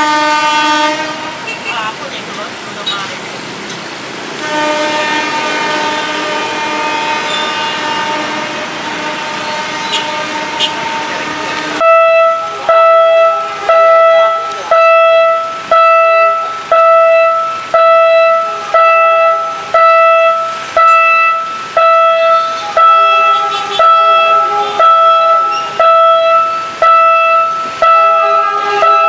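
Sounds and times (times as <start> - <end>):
level crossing warning bell: 10.8 - 29.0.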